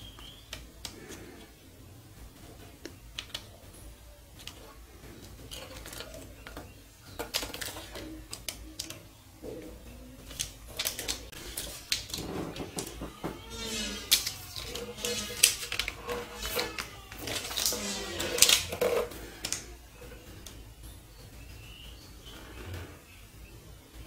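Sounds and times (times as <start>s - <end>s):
plastic film crinkling: 4.4s - 9.0s, 10.2s - 20.6s.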